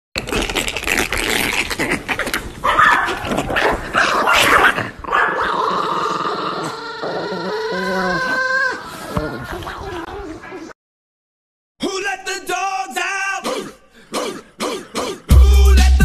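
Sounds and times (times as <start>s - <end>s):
small dogs growling and yapping: 1.8s - 10.4s
dog whining: 4.3s - 9.6s.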